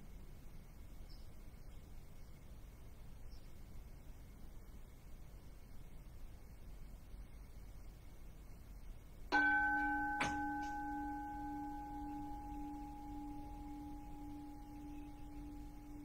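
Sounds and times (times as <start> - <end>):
bowl bell ringing: 9.3 - 16.0
sharp knock: 9.4 - 11.0.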